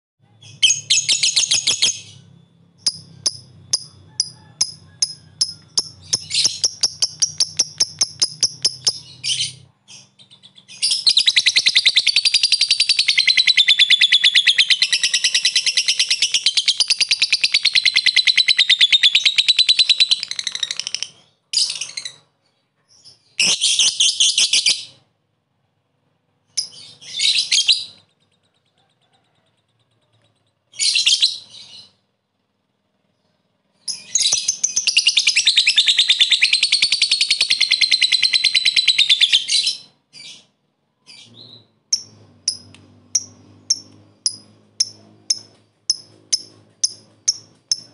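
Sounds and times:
lovebird chirping and chattering: 0.4s - 25.0s, 26.4s - 32.0s, 33.2s - 40.5s, 41.1s - 47.9s.

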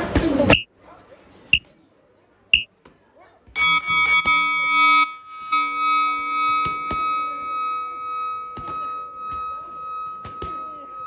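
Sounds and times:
music of long held chords: 3.6s - 11.0s.

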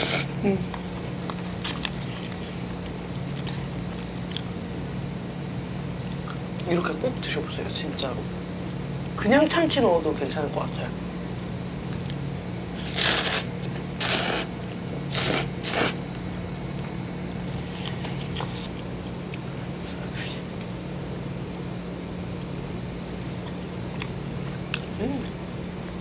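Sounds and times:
noodles slurped: 0.0s - 0.3s, 12.8s - 14.5s, 15.1s - 16.1s
steady low hum: 0.0s - 26.0s.

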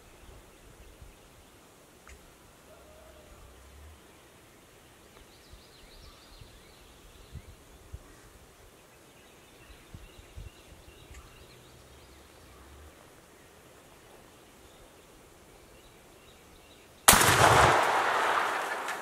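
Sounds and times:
faint bird calls: 2.1s - 17.0s.

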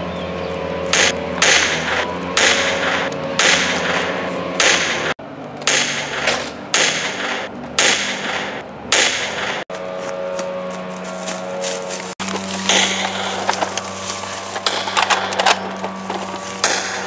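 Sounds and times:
sharp hits: 0.9s - 9.7s, 12.6s - 13.7s, 16.6s - 17.0s.

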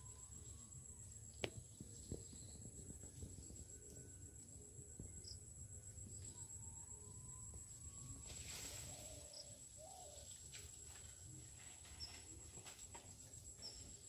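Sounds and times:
high insect-like drone: 0.0s - 14.0s.

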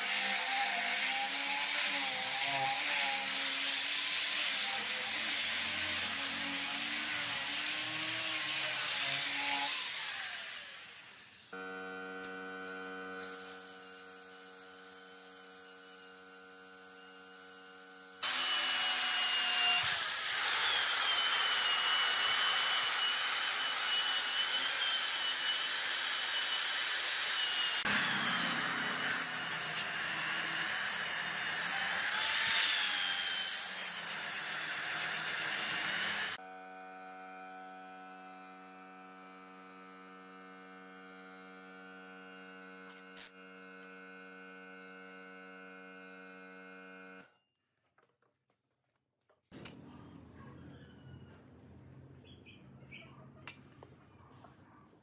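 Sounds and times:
cordless drill motor whining: 9.6s - 34.2s
power sanding on wood: 18.2s - 36.4s.

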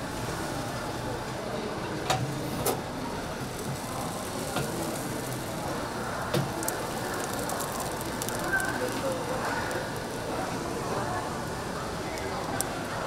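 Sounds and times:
grill hissing: 2.2s - 13.0s.

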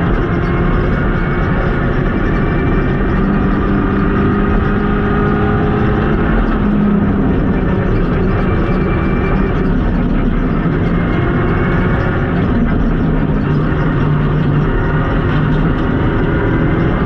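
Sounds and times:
car engine at high revs: 0.0s - 17.0s
road and tyre noise: 0.0s - 17.0s.

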